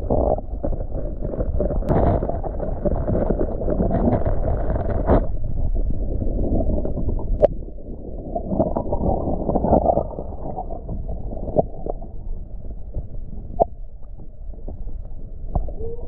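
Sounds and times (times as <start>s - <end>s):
wind rumble on microphone: 0.0s - 16.0s
stream water gurgling: 6.2s - 12.1s.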